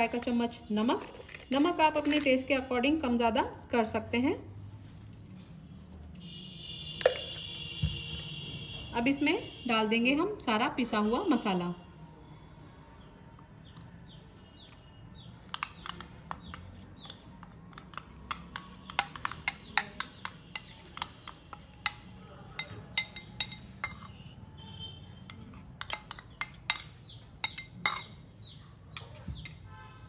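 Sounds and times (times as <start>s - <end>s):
spoon scraping ceramic bowl: 15.5s - 28.3s.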